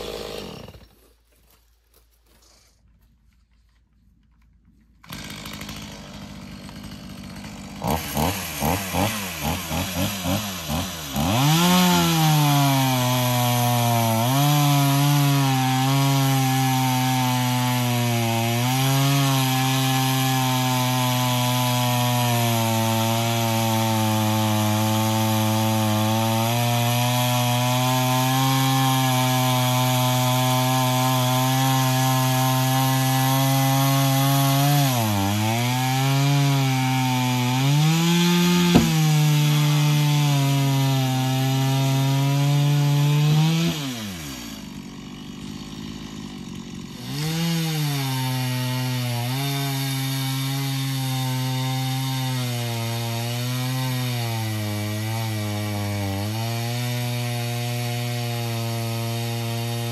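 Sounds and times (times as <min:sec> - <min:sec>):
chainsaw cutting log: 0:00.0 - 0:01.2, 0:04.5 - 0:59.9
sharp knock: 0:38.7 - 0:39.2.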